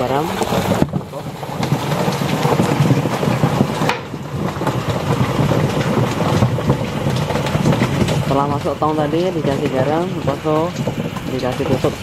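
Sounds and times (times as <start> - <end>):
fish splashing and knocking: 0.0 - 8.4.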